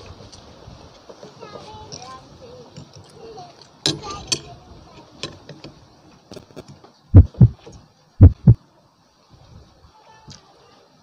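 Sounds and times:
heartbeat double thumps: 0:07.1 - 0:07.6, 0:08.2 - 0:08.6.

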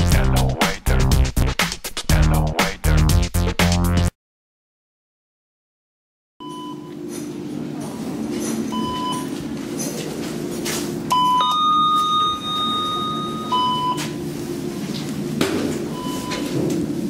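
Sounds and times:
short high elevator beep: 0:06.4 - 0:07.0, 0:08.7 - 0:09.4, 0:11.1 - 0:14.3, 0:15.9 - 0:16.6
two-note elevator tone: 0:11.2 - 0:14.2.

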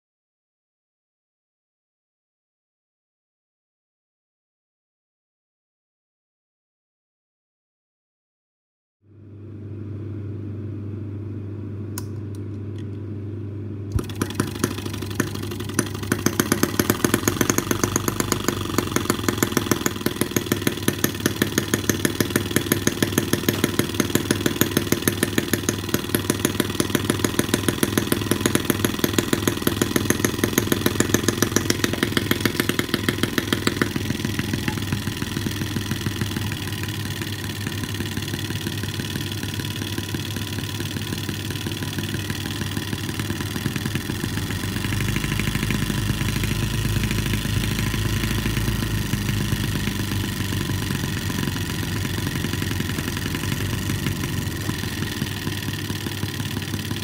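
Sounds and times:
model engine exhaust popping: 0:13.9 - 0:57.0.

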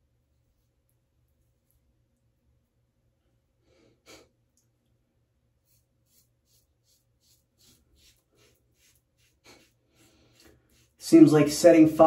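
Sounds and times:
razor scraping stubble: 0:05.6 - 0:11.4.

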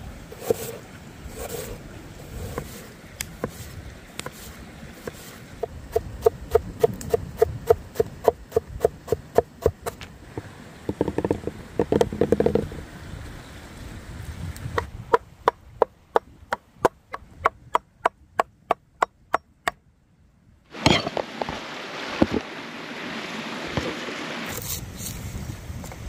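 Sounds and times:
knocks: 0:10.9 - 0:12.7.

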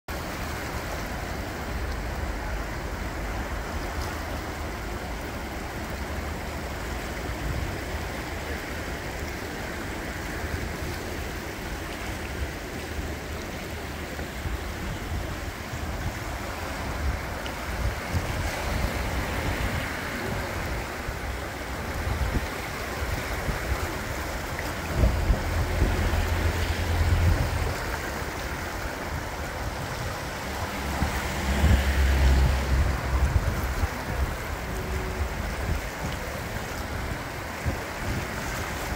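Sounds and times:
river water rushing: 0:00.1 - 0:38.9
wind buffeting microphone: 0:00.4 - 0:38.9.

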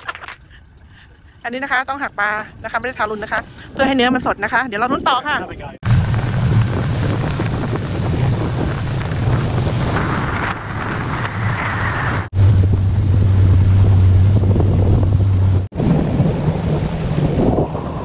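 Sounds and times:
wind buffeting microphone: 0:02.0 - 0:18.0
outboard motor running: 0:05.8 - 0:10.3, 0:12.4 - 0:18.0
water rushing past hull: 0:05.8 - 0:18.0.

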